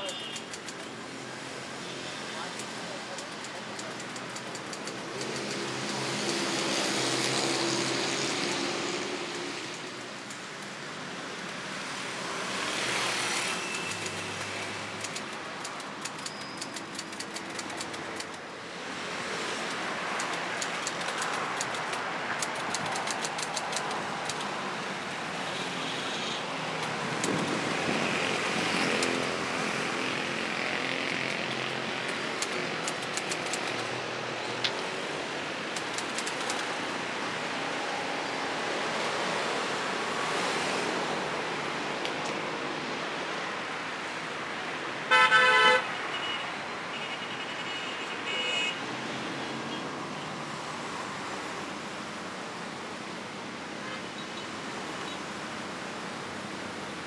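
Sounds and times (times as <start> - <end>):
typewriter keys clacking: 0.0 - 1.0, 2.5 - 6.4, 13.7 - 18.4, 19.6 - 24.6, 31.3 - 34.0, 35.7 - 36.9
road traffic passing: 0.0 - 57.0.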